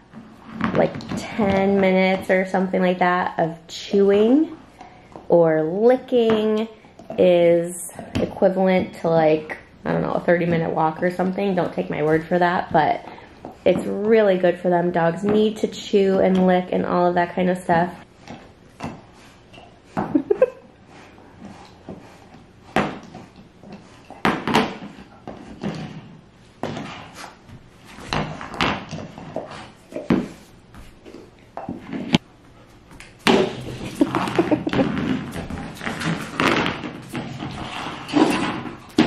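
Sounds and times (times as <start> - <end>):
dog gnawing rubber toy: 20.8 - 30.4.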